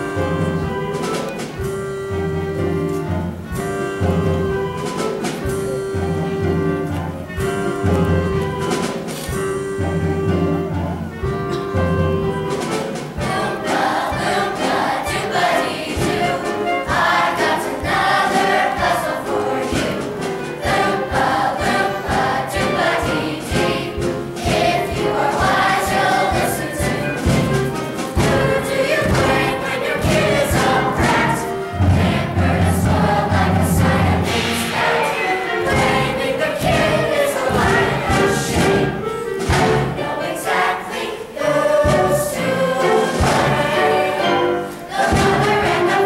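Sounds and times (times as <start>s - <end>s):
children's chorus singing: 0.0s - 46.0s
instrumental accompaniment: 0.0s - 46.0s.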